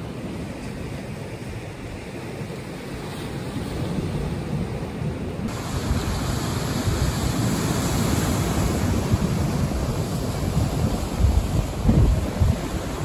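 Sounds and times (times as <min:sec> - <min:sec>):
surf washing over rocks: 0:00.0 - 0:13.0
wind buffeting microphone: 0:00.0 - 0:13.0.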